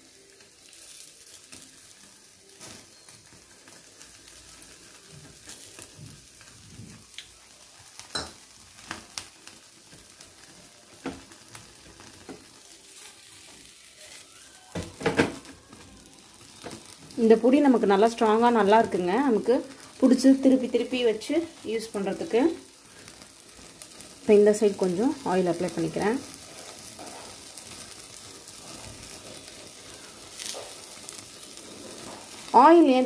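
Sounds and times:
fish sizzling on a grill: 0:00.0 - 0:33.0
small pops and crackles: 0:02.6 - 0:17.2, 0:22.6 - 0:32.6.

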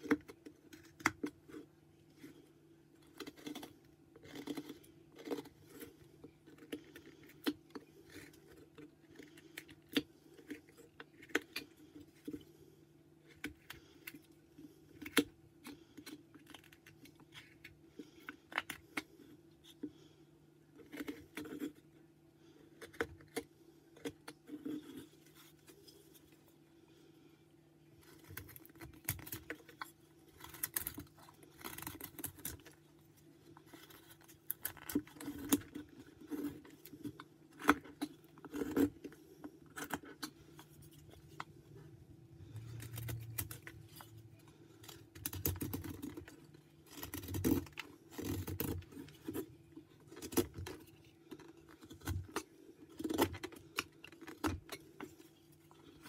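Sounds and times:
knife cutting and scraping wood: 0:03.0 - 0:12.4, 0:33.5 - 0:56.0.

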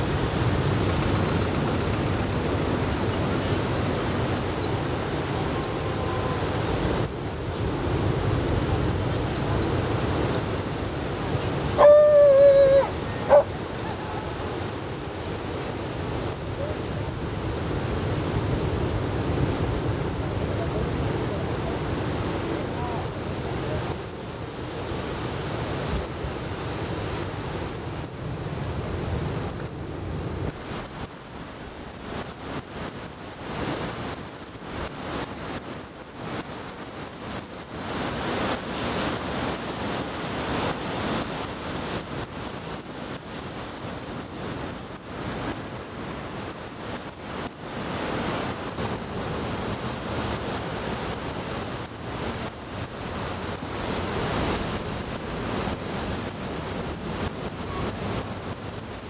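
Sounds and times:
wind buffeting microphone: 0:00.0 - 0:59.0
surf breaking on beach: 0:30.4 - 0:59.0.

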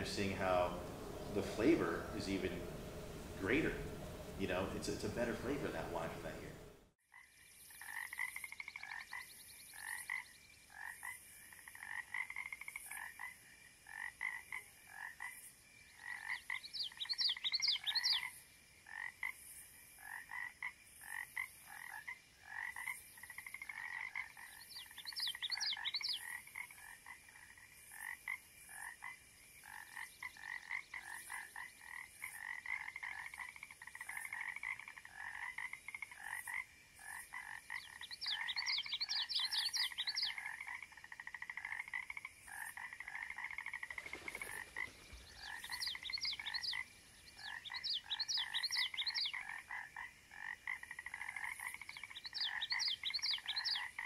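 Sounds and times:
higher chirps: 0:00.0 - 0:06.8, 0:37.7 - 0:40.4
frogs calling: 0:00.0 - 0:54.0.

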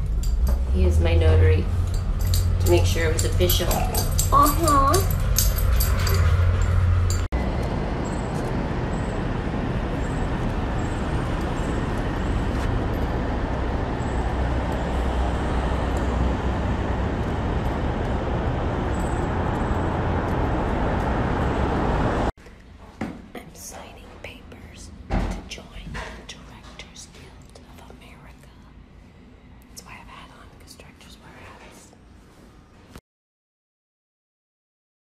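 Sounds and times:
street traffic hum: 0:00.0 - 0:22.3
short clicks and jingles: 0:01.8 - 0:07.3.

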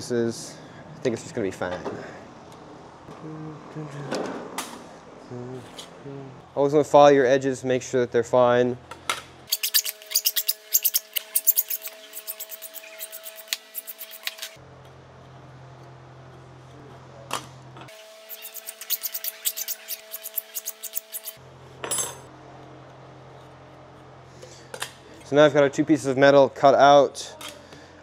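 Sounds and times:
hand file rasping on metal edge: 0:09.5 - 0:14.6, 0:18.0 - 0:21.4.

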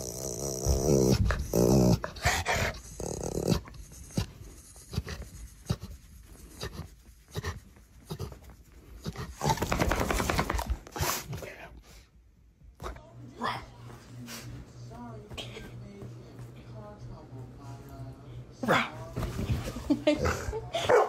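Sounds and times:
dog grumbling: 0:00.0 - 0:05.8, 0:20.0 - 0:20.8.

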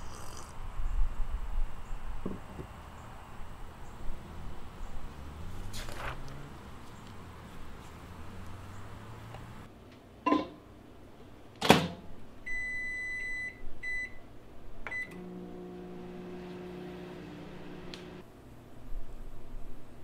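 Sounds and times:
microwave oven humming: 0:14.9 - 0:18.2.

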